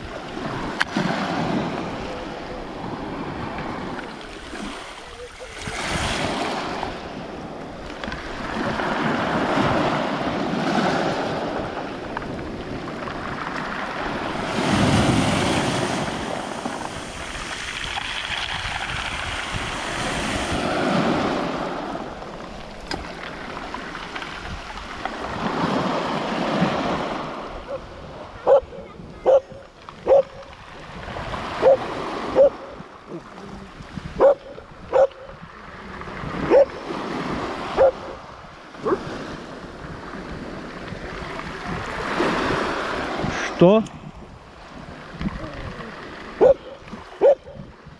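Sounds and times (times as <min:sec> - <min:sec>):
waves washing over pebbles: 0:00.0 - 0:47.9
dog barking: 0:27.7 - 0:30.5, 0:31.6 - 0:32.8, 0:34.2 - 0:35.4, 0:36.5 - 0:36.8, 0:37.8 - 0:38.2, 0:38.8 - 0:39.0, 0:46.4 - 0:47.7.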